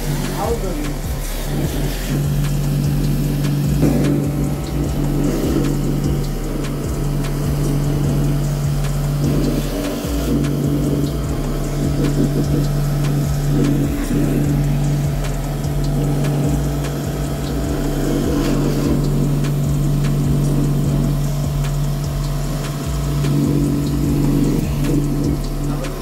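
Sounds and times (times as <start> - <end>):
hiss of water jet: 0.0 - 26.0
pressure washer motor hum: 0.0 - 26.0.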